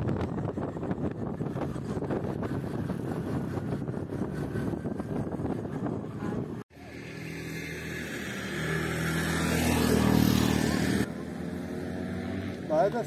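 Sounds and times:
wind noise on microphone: 0.0s - 6.6s.

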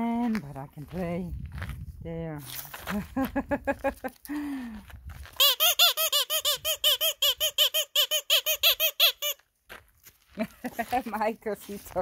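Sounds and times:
squeaky rubber toy squeaking: 5.4s - 9.4s.

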